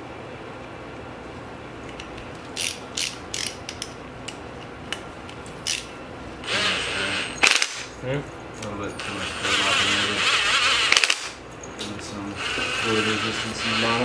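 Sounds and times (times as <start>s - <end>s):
hand ratchet clicking: 2.6s - 3.9s, 9.6s - 11.4s.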